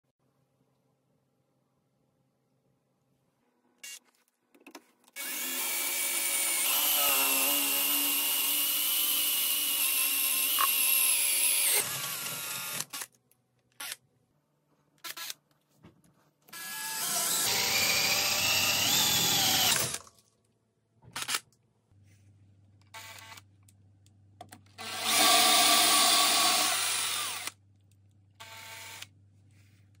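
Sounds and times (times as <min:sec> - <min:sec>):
power drill boring: 0:05.2 - 0:13.1, 0:16.5 - 0:20.0, 0:24.8 - 0:27.6, 0:28.4 - 0:29.1.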